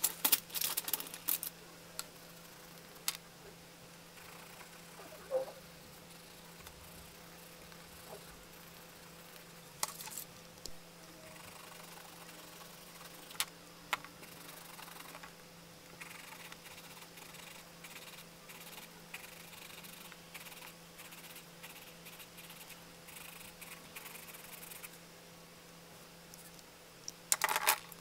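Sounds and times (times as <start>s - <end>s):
steady low hum: 0.0s - 28.0s
pencil scratching on paper: 16.2s - 24.9s.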